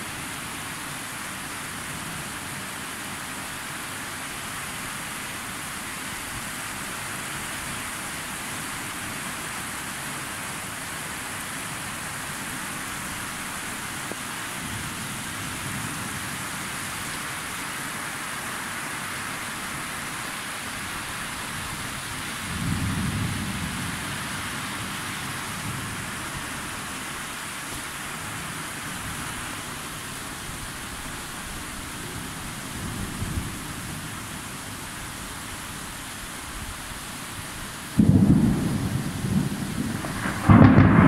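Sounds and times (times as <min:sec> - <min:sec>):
rain hissing: 0:00.0 - 0:41.0
thunder rumbling: 0:38.0 - 0:41.0.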